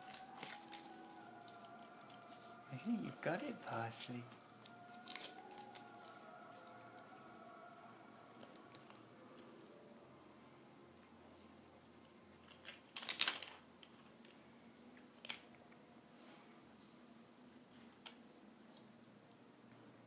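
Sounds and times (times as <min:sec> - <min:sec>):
paper wrapping tearing: 0:00.0 - 0:07.1, 0:12.0 - 0:14.0
dog gnawing crunching: 0:00.0 - 0:07.2, 0:11.9 - 0:14.1.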